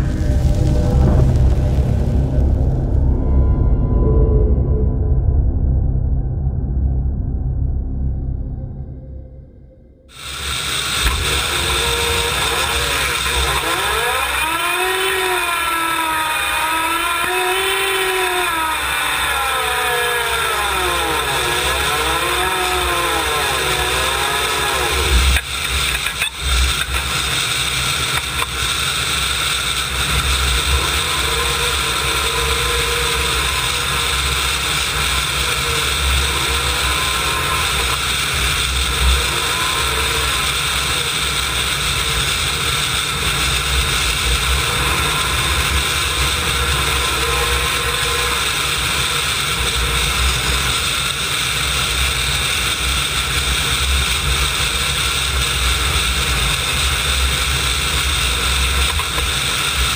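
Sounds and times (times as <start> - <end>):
turbine engines whining: 0.0 - 59.9.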